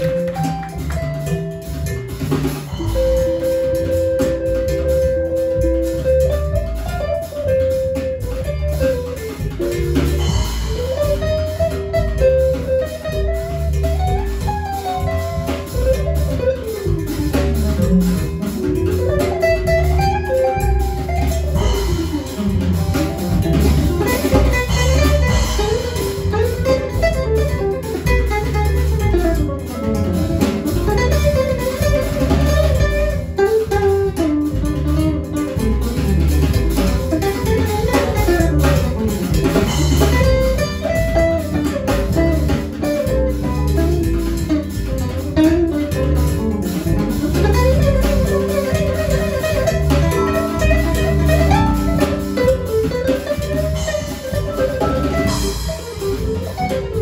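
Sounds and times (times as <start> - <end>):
guitar solo: 0.0 - 2.1, 11.2 - 34.3, 44.8 - 57.0
percussion: 0.0 - 57.0
walking upright bass: 0.0 - 57.0.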